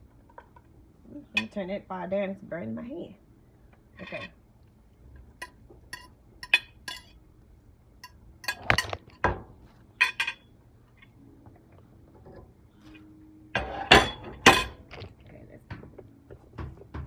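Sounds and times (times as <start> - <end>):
spatula clinking on plate and pan: 5.4 - 7.2, 8.0 - 9.3, 10.0 - 10.5, 13.6 - 14.9.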